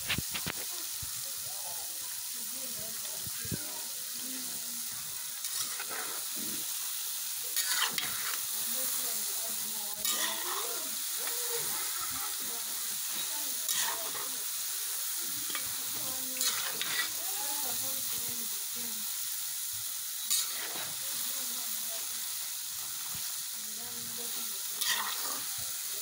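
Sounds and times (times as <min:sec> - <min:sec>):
dough sizzling in hot oil: 0:00.0 - 0:26.0
spatula stirring in metal pan: 0:04.1 - 0:18.2, 0:20.2 - 0:21.3, 0:24.3 - 0:26.0.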